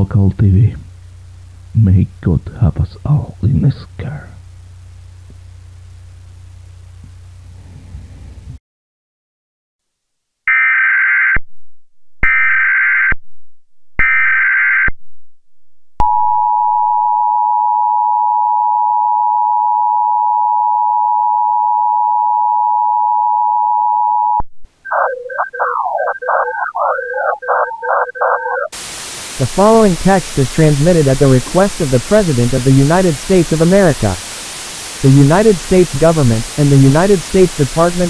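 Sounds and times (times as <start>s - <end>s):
buzzy data bursts: 24.8s - 38.0s
harsh scratchy electronic noise: 24.8s - 38.0s.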